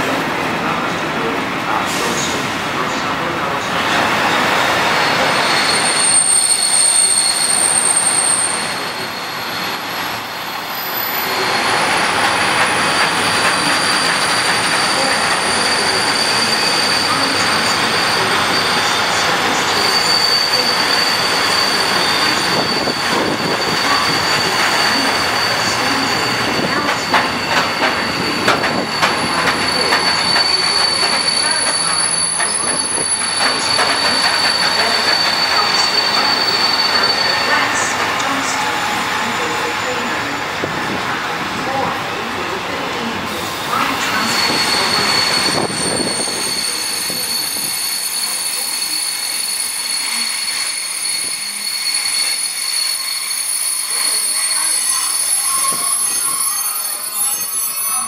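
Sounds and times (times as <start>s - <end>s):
train wheels rumbling on rail: 0.0s - 56.5s
wheel squeal: 4.5s - 10.0s, 10.7s - 37.9s, 44.0s - 58.0s
wagons clanking over rail joints: 22.6s - 38.3s.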